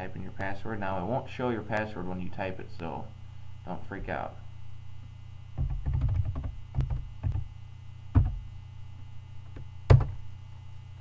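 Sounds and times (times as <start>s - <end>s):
low electrical hum: 0.0s - 11.0s
keyboard keystrokes: 5.6s - 7.4s.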